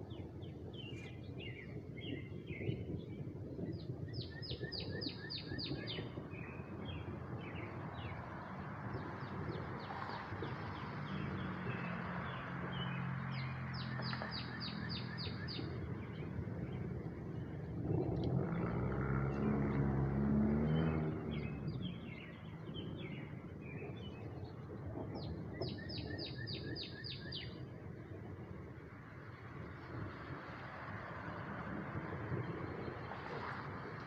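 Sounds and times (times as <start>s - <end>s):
songbirds chirping: 0.0s - 34.0s
steady low rumble: 14.6s - 34.0s.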